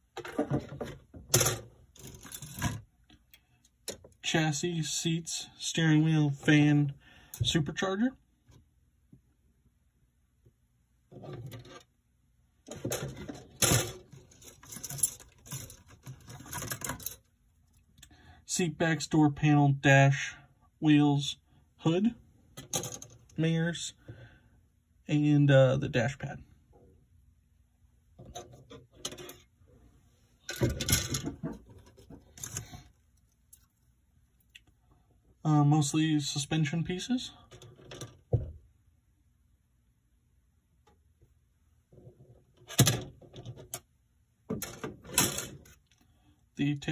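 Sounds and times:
plastic parts clattering: 0.1 - 2.8, 12.7 - 17.3, 30.4 - 32.9, 44.5 - 45.9.

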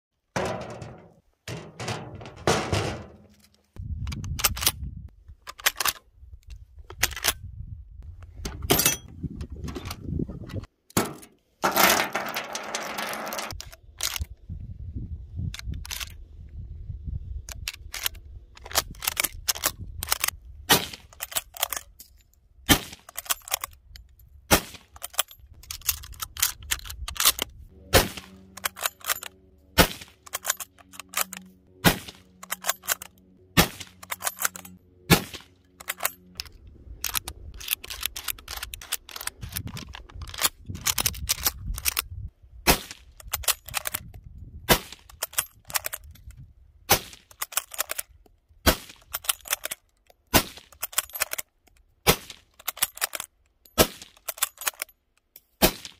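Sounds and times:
rifle shots: 27.9 - 28.4, 31.8 - 32.2
rifle bolt clacks: 35.7 - 42.0, 47.2 - 48.2, 48.9 - 55.5.

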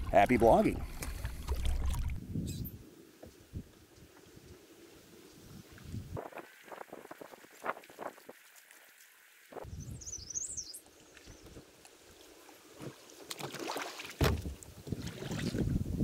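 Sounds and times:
paddle splashing water: 0.0 - 2.2, 6.2 - 9.6, 10.8 - 15.7
wind rumble on microphone: 0.0 - 2.8, 5.3 - 8.4, 9.6 - 10.4, 14.2 - 16.0.

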